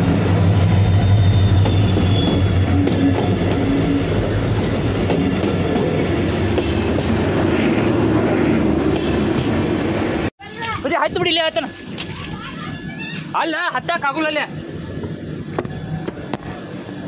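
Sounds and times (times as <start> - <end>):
locomotive engine drone: 0.0 - 10.3, 14.5 - 17.0
coaches rumbling on rails: 0.0 - 10.8, 11.7 - 17.0.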